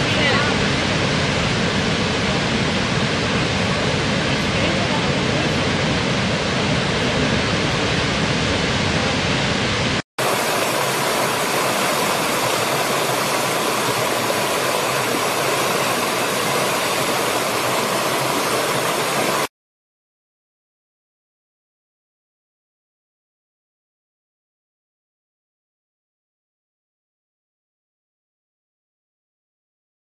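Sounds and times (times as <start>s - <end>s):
stream rushing over stones: 0.0s - 19.5s
waterfall pouring with deep rumble: 0.0s - 19.5s.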